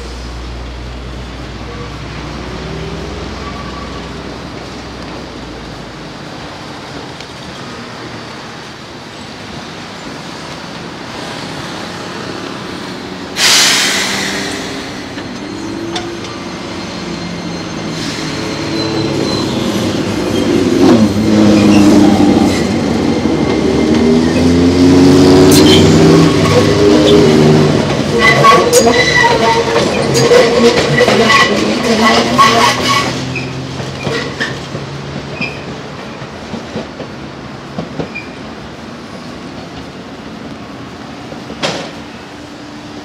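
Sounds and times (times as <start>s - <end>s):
train running on track: 0.0s - 43.0s
sudden loud rush of noise: 11.0s - 15.2s.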